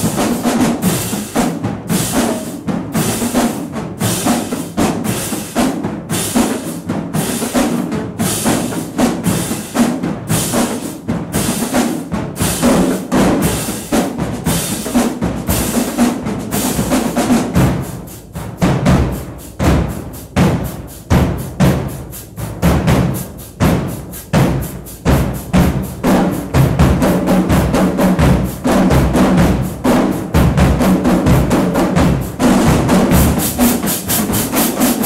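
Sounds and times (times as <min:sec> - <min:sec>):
marching drumline playing: 0:00.0 - 0:35.0
heavy bass drum hits: 0:17.4 - 0:34.6.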